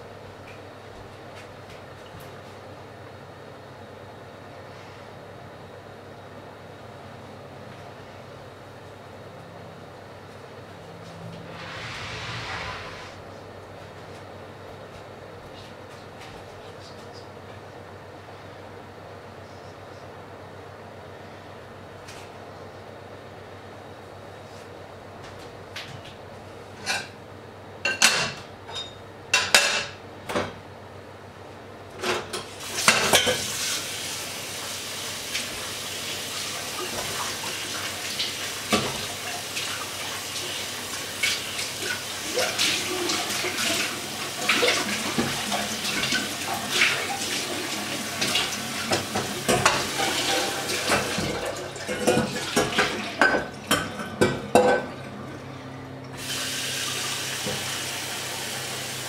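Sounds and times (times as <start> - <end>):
dishes clattering in sink: 27.9 - 30.6, 32.0 - 33.5, 48.2 - 55.1.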